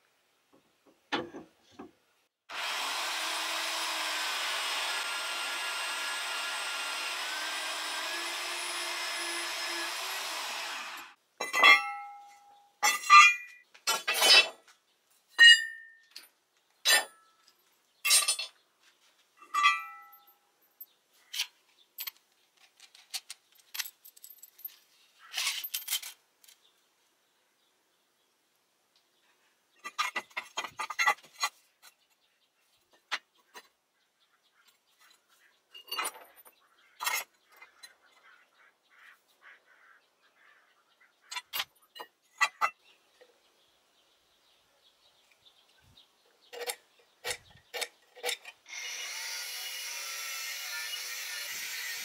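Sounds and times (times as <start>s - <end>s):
power tool running: 2.5s - 11.2s, 48.7s - 52.0s
metal parts clinking on concrete: 11.4s - 14.6s, 15.4s - 18.6s, 19.4s - 26.6s, 29.8s - 32.0s, 35.7s - 37.9s, 41.3s - 42.7s, 46.5s - 48.6s.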